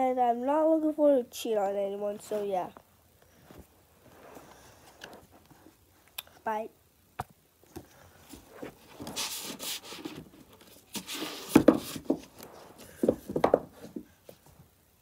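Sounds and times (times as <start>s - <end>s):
cloth rubbing on phone microphone: 3.4s - 5.7s.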